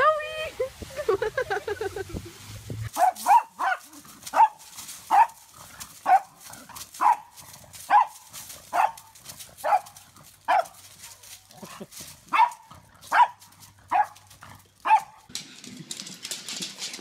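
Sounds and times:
dog yapping: 2.9s - 5.4s, 6.0s - 6.4s, 7.0s - 7.3s, 7.9s - 10.8s, 12.3s - 14.2s, 14.8s - 15.3s.

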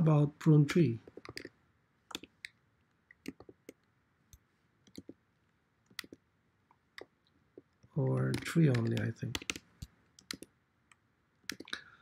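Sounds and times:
keyboard keystrokes: 8.0s - 10.5s.

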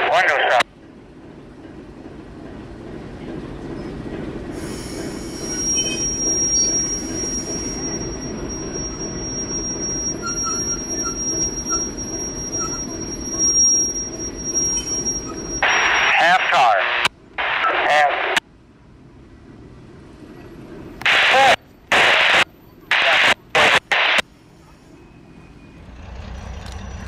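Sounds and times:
train rumbling: 0.0s - 27.0s
wheels squealing while braking: 3.7s - 16.2s, 24.3s - 27.0s.

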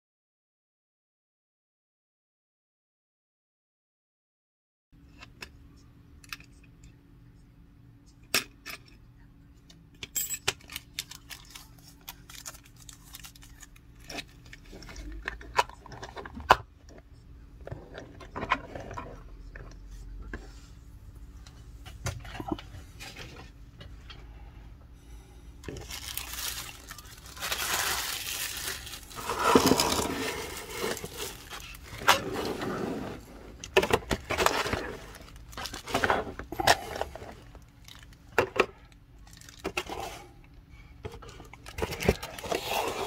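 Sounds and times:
packaging rustling: 10.7s - 16.2s, 25.6s - 38.2s.

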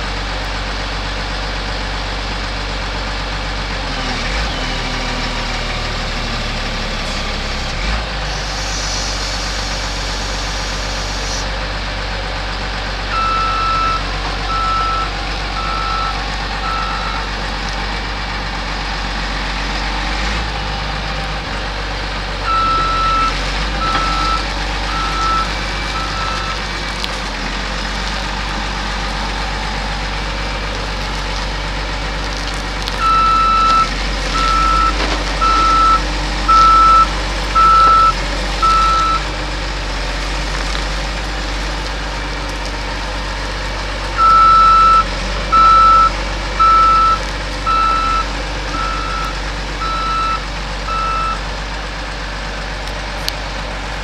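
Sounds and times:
diesel engine running: 0.0s - 54.0s
backup alarm beeping: 13.1s - 17.3s, 22.5s - 26.6s, 33.0s - 39.3s, 44.2s - 51.4s.

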